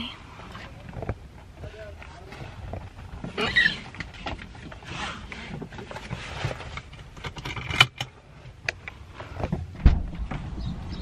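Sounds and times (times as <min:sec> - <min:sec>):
small clicks and knocks: 0:05.6 - 0:09.6
sharp thump: 0:09.8 - 0:10.6.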